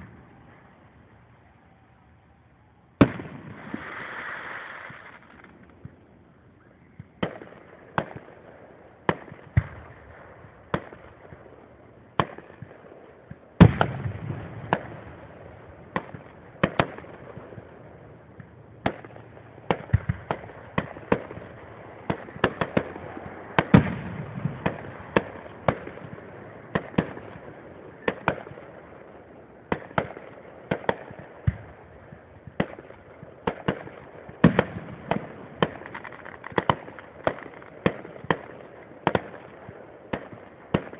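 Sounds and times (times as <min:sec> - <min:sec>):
firework crackling: 0:03.0 - 0:06.1, 0:29.7 - 0:40.9.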